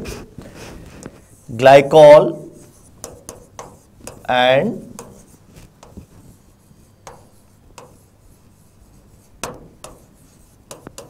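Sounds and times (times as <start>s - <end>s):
chalk scratching on a chalkboard: 0.0s - 11.0s.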